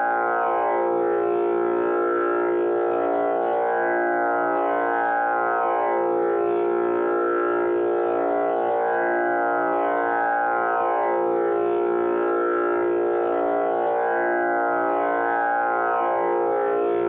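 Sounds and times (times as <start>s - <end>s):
tanpura drone: 0.0s - 17.0s.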